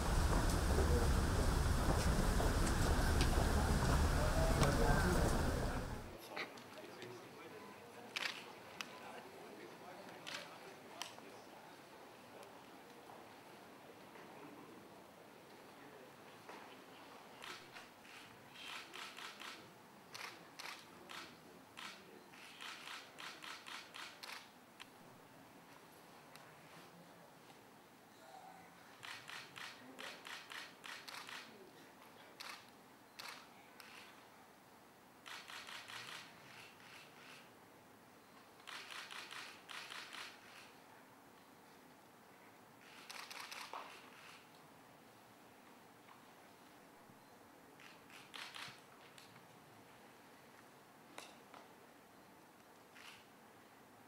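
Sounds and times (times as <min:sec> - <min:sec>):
camera shutters clicking: 0:08.2 - 0:08.5, 0:10.2 - 0:10.5, 0:17.4 - 0:24.5, 0:29.0 - 0:31.5, 0:32.4 - 0:34.1, 0:35.2 - 0:37.5, 0:38.6 - 0:40.8, 0:42.8 - 0:44.5, 0:47.8 - 0:49.3, 0:52.9 - 0:53.3.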